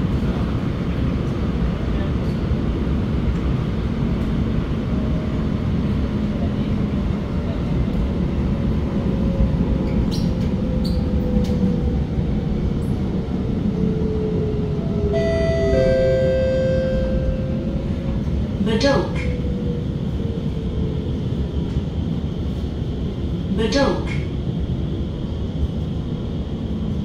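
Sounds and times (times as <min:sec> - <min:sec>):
metro train rumble and hiss: 0:00.0 - 0:27.0
chime-like tone: 0:15.2 - 0:17.6.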